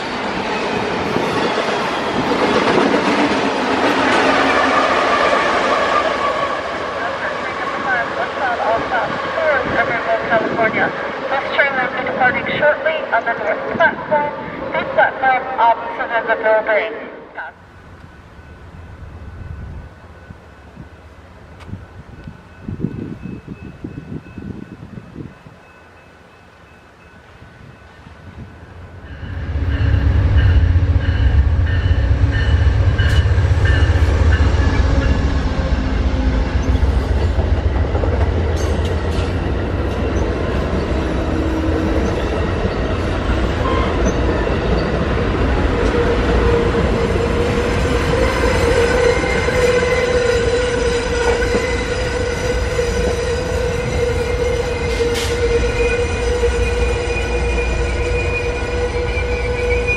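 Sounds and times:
train cars rolling by: 0.0 - 14.9, 17.6 - 59.9
diesel locomotive rumble: 28.6 - 59.9.

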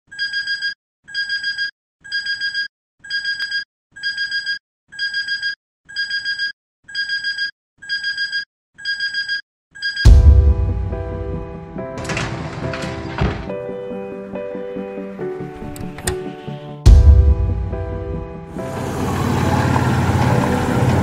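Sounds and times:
alarm clock beeping: 0.1 - 10.2
music: 10.1 - 21.0
loud low thump: 16.9 - 17.7.

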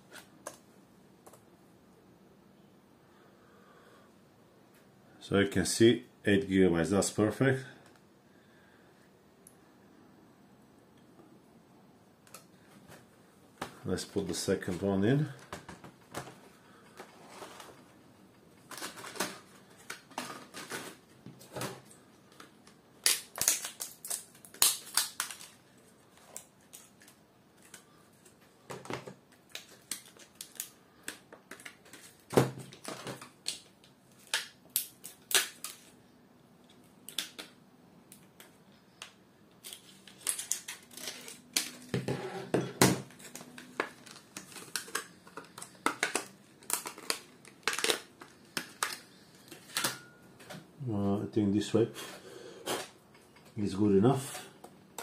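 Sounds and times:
plastic packaging snapping and crackling: 18.6 - 36.0, 36.7 - 42.0, 42.8 - 50.1
scissors cutting plastic: 39.6 - 41.9.

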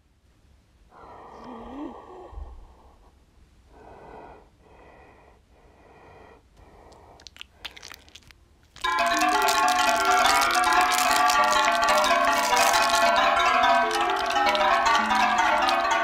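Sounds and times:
breathy wheezing breaths: 0.9 - 8.0.

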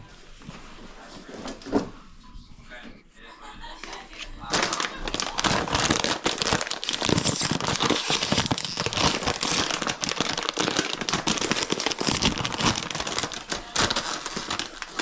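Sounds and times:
packaging crinkling: 4.5 - 15.0.

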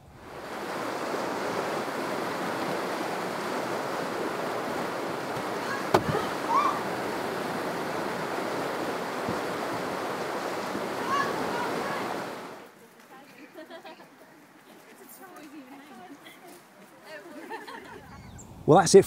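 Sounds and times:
water rushing through river rapid: 0.0 - 12.6
sharp knock: 5.9 - 6.2.

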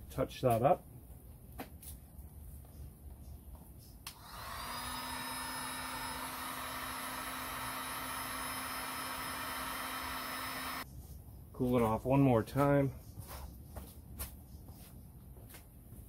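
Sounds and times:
heat gun fan whining: 4.0 - 10.8.

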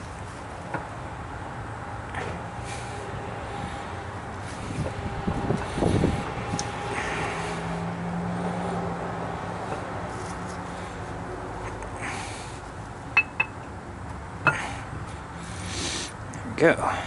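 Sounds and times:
metal knock: 13.2 - 13.6.

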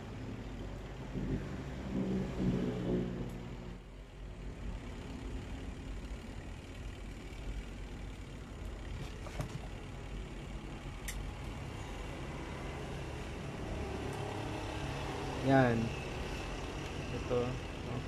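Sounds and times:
low background rumble: 0.0 - 13.8.

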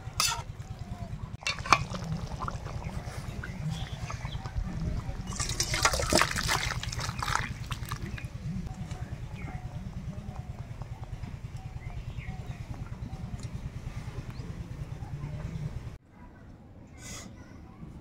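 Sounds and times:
curry pouring and sloshing: 0.0 - 8.4
low rumble: 0.0 - 16.0.

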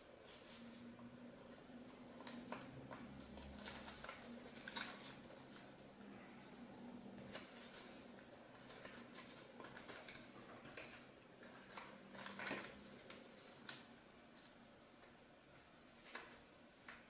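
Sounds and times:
paper crackles: 1.9 - 5.8, 7.1 - 14.6
paper rustling and crinkling: 1.9 - 5.8, 7.1 - 14.6, 16.0 - 17.0.

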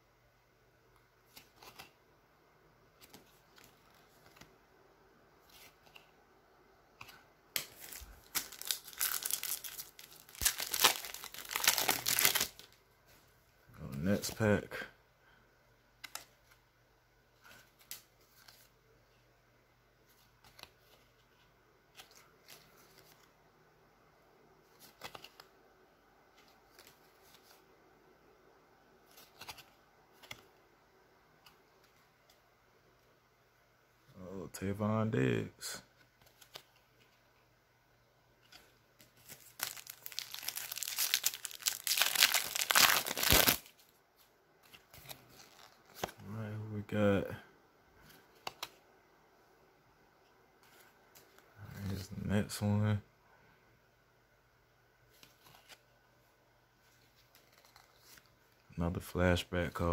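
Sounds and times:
trading cards rustling and flipping: 1.2 - 2.0, 3.0 - 4.6, 5.4 - 6.1, 7.0 - 12.8, 16.0 - 16.6, 17.4 - 18.8, 20.0 - 23.4, 24.6 - 25.5, 26.3 - 27.7, 29.0 - 30.6, 36.0 - 37.4, 38.4 - 46.3, 48.0 - 48.8, 50.6 - 52.2, 55.1 - 55.9, 56.8 - 58.7
foil wrapper crinkling: 7.6 - 12.8, 39.2 - 43.8.

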